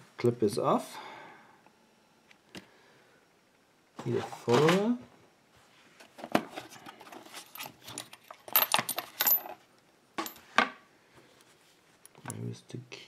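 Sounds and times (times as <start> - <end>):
metal parts clinking: 7.2 - 9.6.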